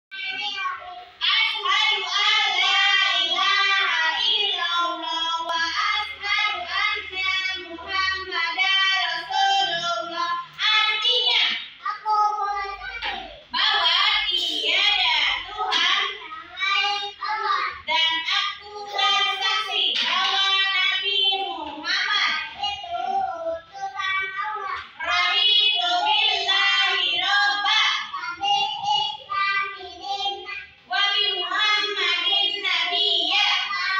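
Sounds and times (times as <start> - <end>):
young children singing: 0.1 - 33.9.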